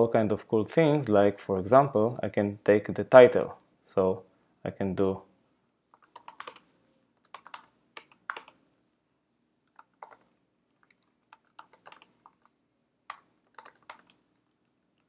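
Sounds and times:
keyboard typing: 0:05.9 - 0:08.6, 0:09.7 - 0:15.0.

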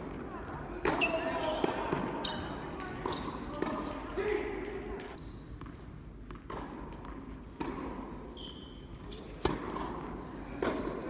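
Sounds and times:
tennis ball bouncing on court: 0:00.2 - 0:03.9, 0:05.0 - 0:08.2, 0:09.3 - 0:11.0
racket hitting ball: 0:06.3 - 0:08.0, 0:09.3 - 0:10.9.

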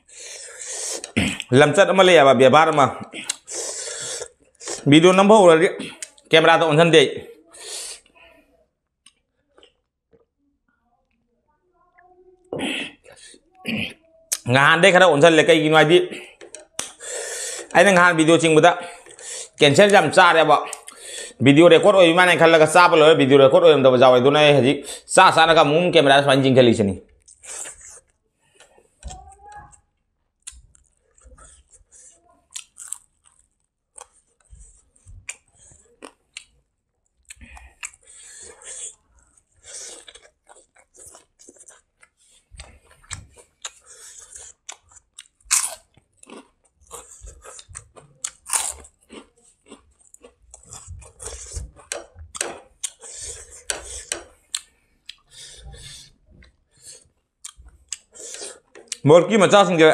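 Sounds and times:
man chewing wet mouth sounds: 0:00.0 - 0:01.5, 0:03.0 - 0:04.9, 0:05.8 - 0:06.3, 0:09.0 - 0:10.2, 0:12.6 - 0:14.5, 0:16.1 - 0:17.8, 0:18.9 - 0:19.6, 0:20.6 - 0:21.4, 0:27.1 - 0:29.8, 0:30.4 - 0:59.0
food crunching: 0:02.7 - 0:05.2, 0:09.0 - 0:10.3, 0:16.2 - 0:17.9, 0:27.1 - 0:59.1.

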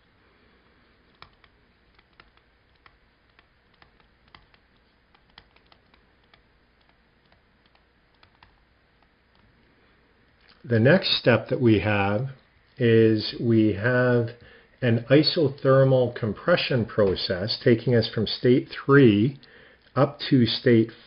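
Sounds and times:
stylus tapping on tablet screen: 0:01.1 - 0:09.5.

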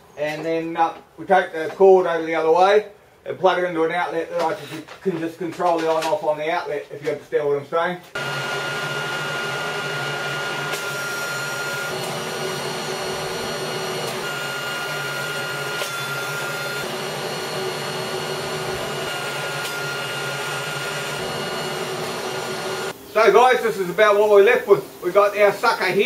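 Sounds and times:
leaf blower air rush and whine: 0:08.2 - 0:26.0.

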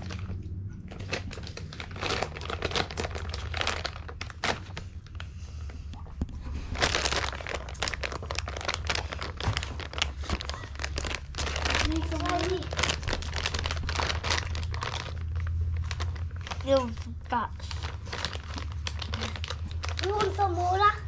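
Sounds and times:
plastic bag crinkling: 0:00.0 - 0:21.0.

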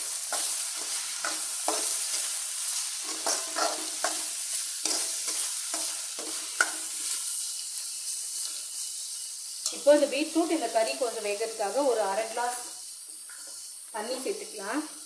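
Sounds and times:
oil sizzling: 0:00.0 - 0:15.0
spoon scraping in iron pan: 0:00.3 - 0:10.0, 0:13.1 - 0:13.8.

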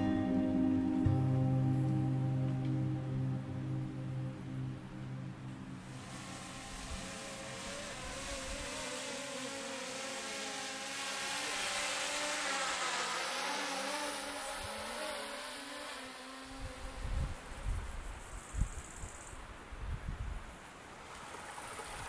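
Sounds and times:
drone propellers buzzing: 0:03.0 - 0:17.6.

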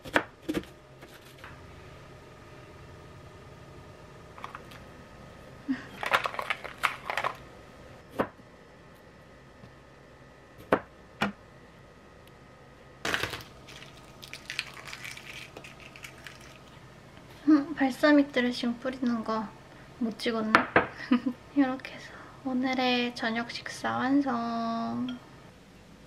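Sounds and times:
egg shell crackling: 0:13.1 - 0:16.8.

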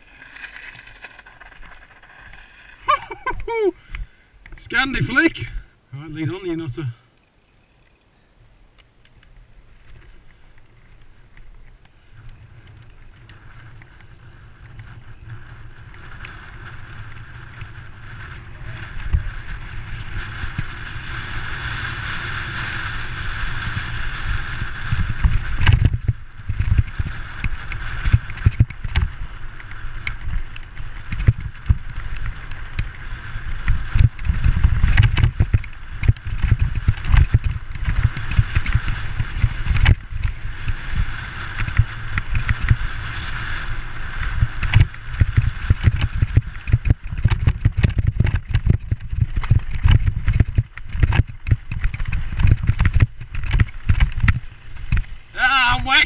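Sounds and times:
tyres rumbling over stones: 0:00.0 - 0:03.5
bike knocking and rattling: 0:00.0 - 0:03.6, 0:09.1 - 0:55.9.

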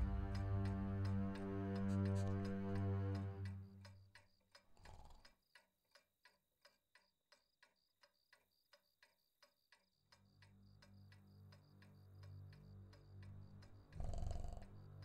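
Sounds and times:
low steady drone: 0:00.0 - 0:03.9
clock ticking: 0:00.0 - 0:15.0.

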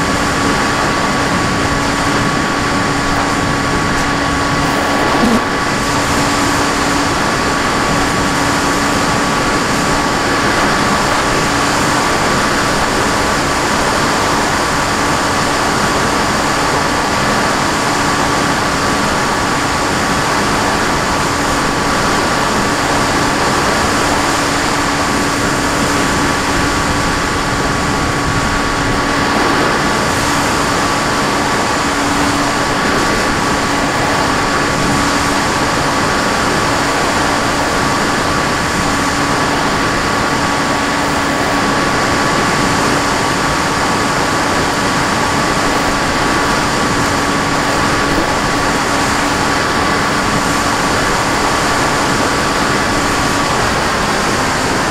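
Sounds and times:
rush of air: 0:00.0 - 0:14.9
drone motor humming: 0:00.0 - 0:15.6.

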